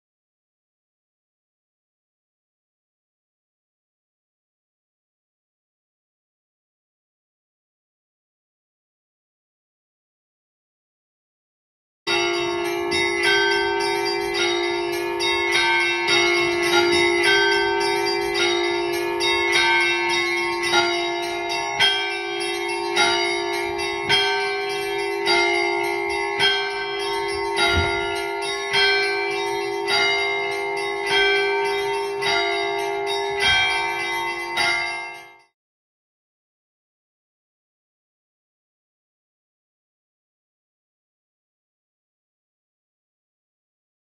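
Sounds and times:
low church bell ringing: 12.1s - 35.5s
small bells struck in patterns: 12.1s - 35.6s.

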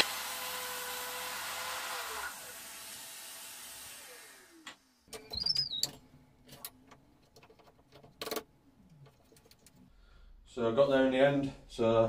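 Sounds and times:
brief high squeak: 5.2s - 5.9s.

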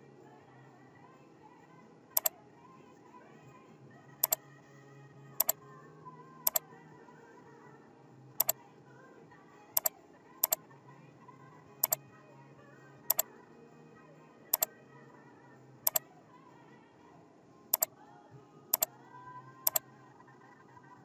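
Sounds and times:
quiet background music: 0.0s - 21.0s
computer mouse double clicking: 9.8s - 10.6s.

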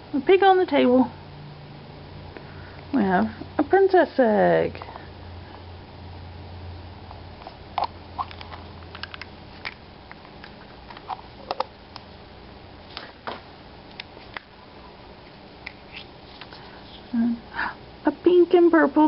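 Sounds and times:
plastic egg clicking open: 7.8s - 12.0s.

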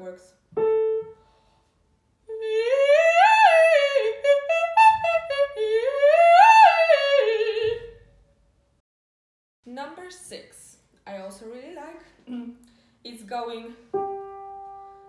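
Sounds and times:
woman singing vocal warm-up: 2.3s - 8.0s.

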